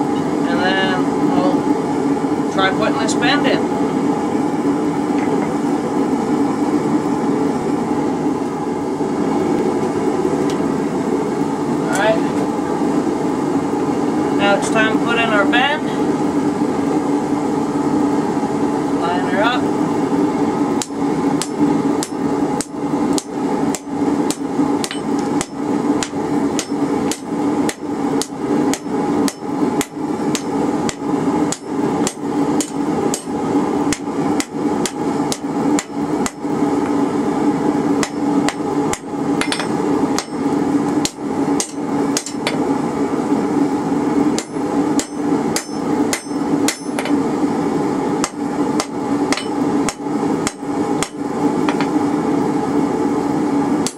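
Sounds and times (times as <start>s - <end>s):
steady hum: 0.0s - 53.9s
hammer striking metal on anvil: 20.8s - 33.3s, 38.0s - 40.4s, 41.0s - 42.6s, 44.4s - 47.2s, 48.2s - 51.9s.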